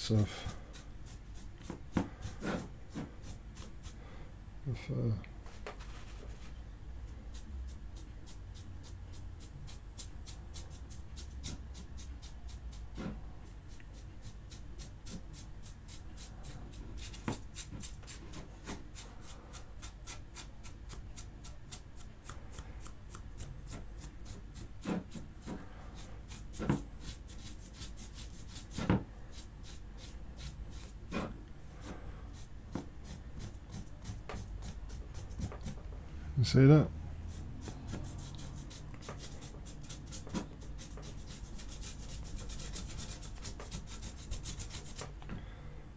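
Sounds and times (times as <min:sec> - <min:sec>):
paintbrush bristles scratching plastic: 0:23.4 - 0:35.9, 0:37.3 - 0:45.2.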